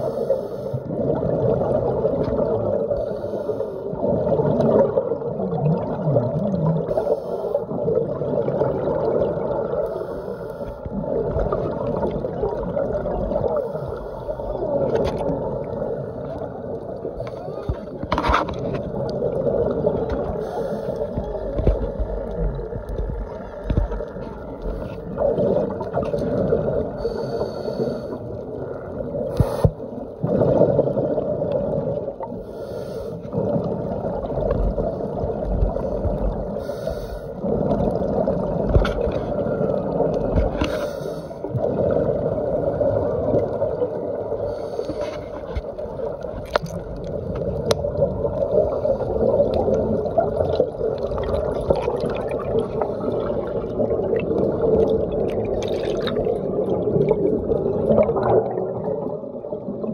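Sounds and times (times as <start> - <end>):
muffled underwater rush: 0.0 - 59.9
scuba exhaust bubbles: 0.0 - 59.9.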